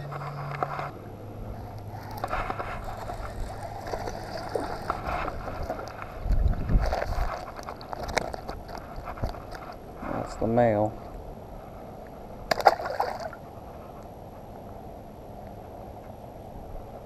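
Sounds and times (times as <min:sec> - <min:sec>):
low steady hum: 0:00.0 - 0:17.0
fish splashing at the surface: 0:12.5 - 0:13.4.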